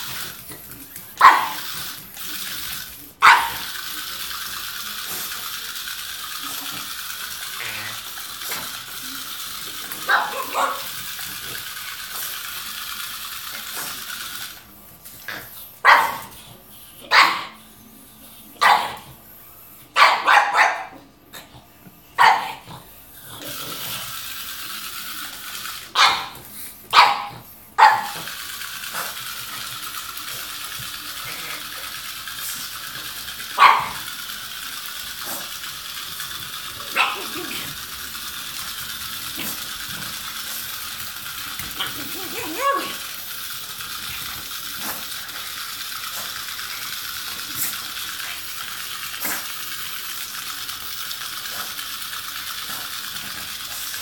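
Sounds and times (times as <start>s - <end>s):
dog barking: 1.2s - 1.7s, 3.2s - 3.7s, 10.0s - 11.0s, 15.8s - 16.3s, 17.1s - 17.6s, 18.6s - 19.0s, 20.0s - 21.0s, 22.2s - 22.6s, 25.9s - 28.3s, 33.6s - 34.1s.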